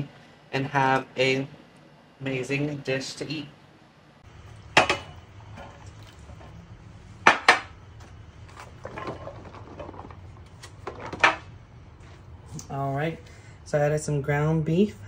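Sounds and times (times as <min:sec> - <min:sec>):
kitchenware clattering on countertop: 0:04.8 - 0:05.8, 0:10.8 - 0:11.5.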